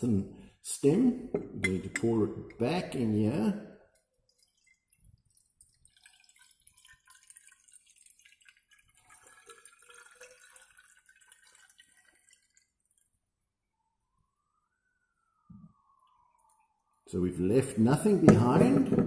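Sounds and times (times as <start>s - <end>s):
liquid trickling and dripping: 3.8s - 13.3s, 15.3s - 17.1s.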